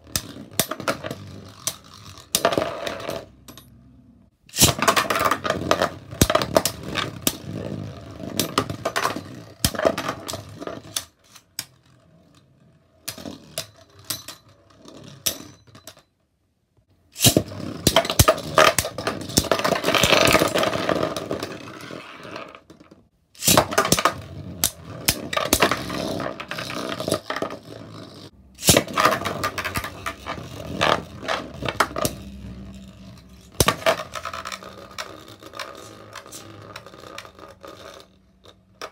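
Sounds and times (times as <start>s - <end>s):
spinning tops clacking and grinding: 23.4s - 38.9s.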